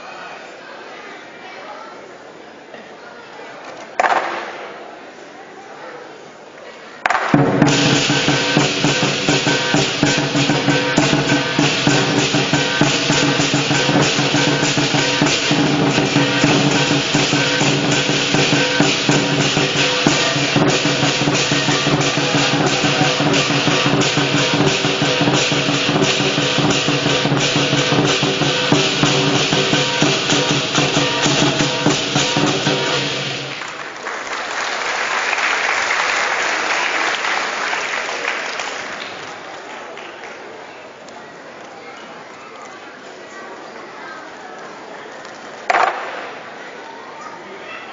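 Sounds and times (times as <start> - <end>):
percussion band drum cymbals gong: 7.3 - 33.9
applause: 33.5 - 40.8.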